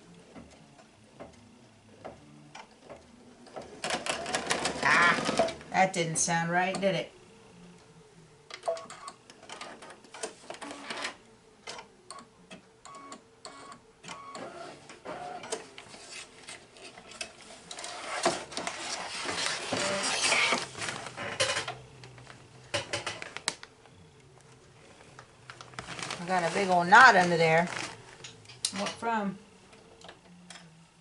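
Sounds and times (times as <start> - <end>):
paper crinkling: 17.5 - 21.2, 24.4 - 28.3.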